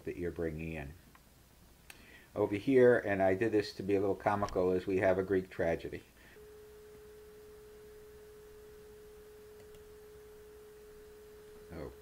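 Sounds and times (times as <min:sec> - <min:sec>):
faint steady electronic tone: 0:06.2 - 0:12.0.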